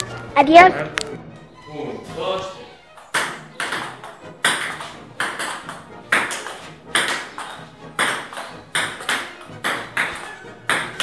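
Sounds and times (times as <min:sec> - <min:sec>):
ball bouncing on table: 0:03.0 - 0:11.0
ball clicking off paddles: 0:03.0 - 0:11.0.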